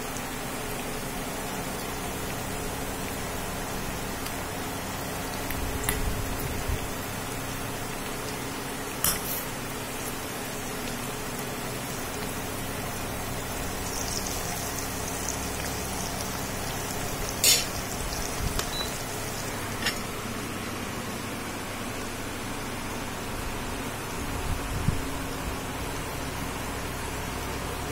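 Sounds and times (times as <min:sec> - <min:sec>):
slices sizzling in hot oil: 0:00.0 - 0:20.6.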